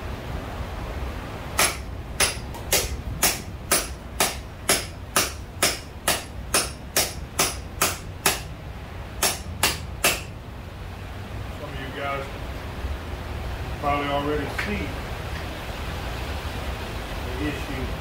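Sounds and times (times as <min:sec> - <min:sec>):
hammer striking metal tool: 0:01.6 - 0:08.5, 0:09.2 - 0:10.3.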